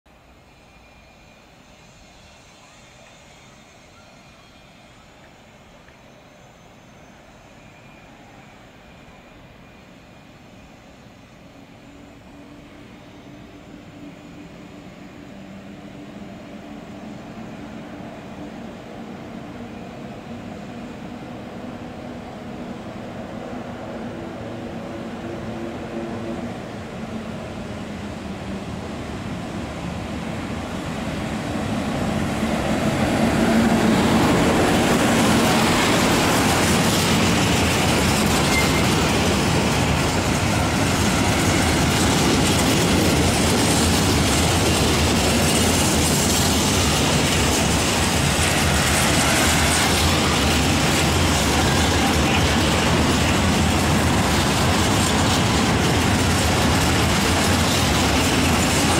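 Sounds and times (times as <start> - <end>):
freight train passing: 0.1 - 58.9
wheels clattering on rails: 33.5 - 58.9.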